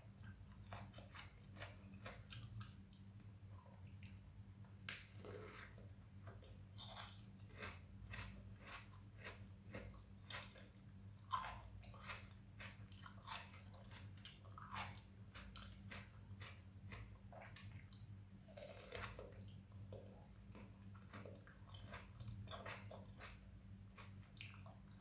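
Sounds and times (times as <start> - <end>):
faint low hum: 0.0 - 25.0
wet mouth eating fruit: 5.0 - 25.0.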